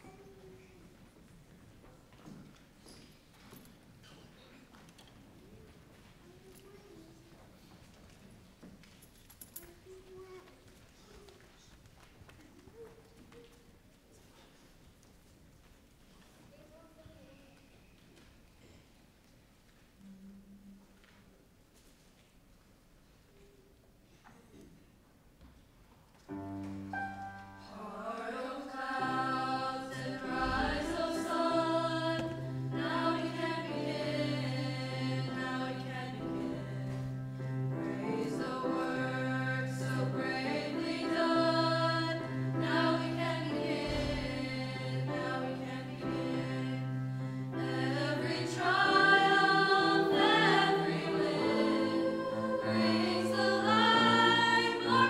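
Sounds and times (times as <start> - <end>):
choir singing in parts: 27.0 - 55.0.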